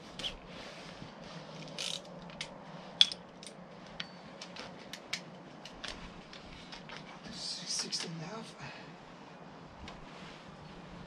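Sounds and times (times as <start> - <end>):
metal wrench clicking: 1.7 - 3.6.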